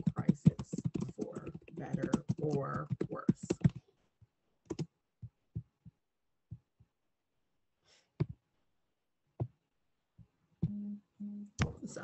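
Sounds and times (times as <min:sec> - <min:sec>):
keyboard and mouse clicks: 0:00.0 - 0:03.8, 0:04.7 - 0:04.9
person humming: 0:10.6 - 0:11.6.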